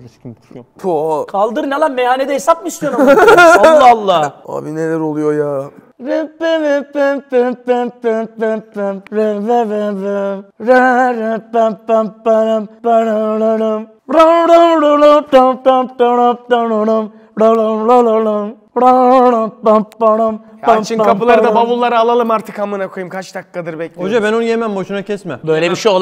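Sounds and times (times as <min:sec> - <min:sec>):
man singing unaccompanied chant: 0:06.0 - 0:21.7.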